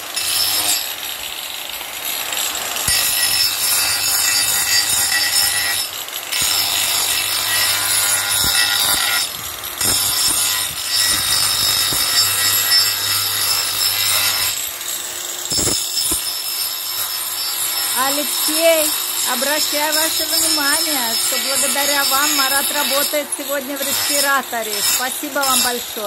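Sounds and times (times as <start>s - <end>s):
angle grinder sanding wood: 0.0s - 26.0s.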